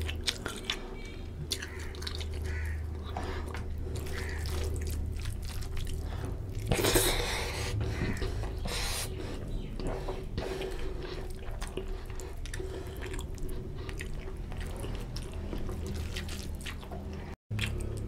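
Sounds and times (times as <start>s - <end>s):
person chewing and lip smacking: 0.0s - 18.0s
steady low hum: 0.0s - 18.0s
fingers squelching rice in gravy: 3.8s - 7.0s, 11.2s - 16.8s.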